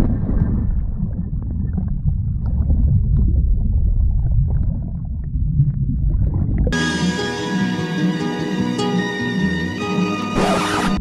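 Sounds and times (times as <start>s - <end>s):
muffled underwater rumble: 0.0s - 6.8s.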